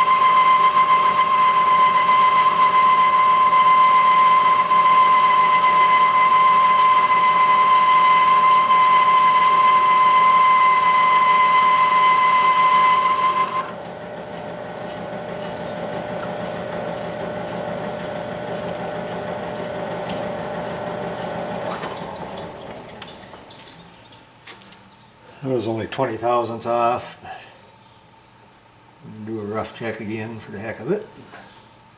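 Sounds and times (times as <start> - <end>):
lathe cutting high whine: 0.0 - 22.8
lathe running: 0.0 - 23.5.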